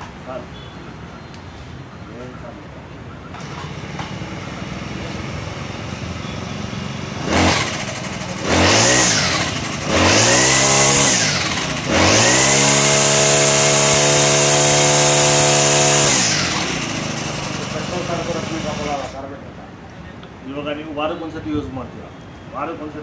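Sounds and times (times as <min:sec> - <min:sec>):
brush cutter engine revving: 0:07.0 - 0:19.2.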